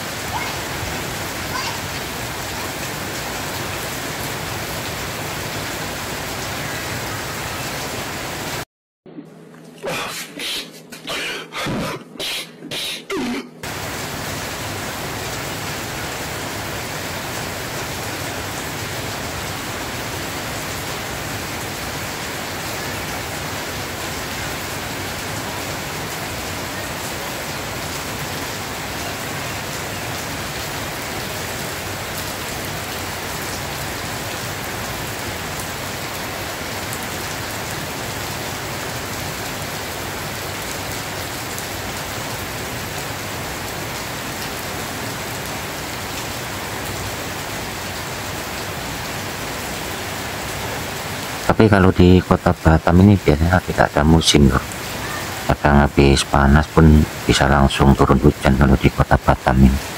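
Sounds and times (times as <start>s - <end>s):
heavy rain pouring: 0.0s - 8.7s, 13.6s - 59.9s
person's voice: 1.5s - 1.9s, 9.2s - 13.6s, 51.4s - 59.9s.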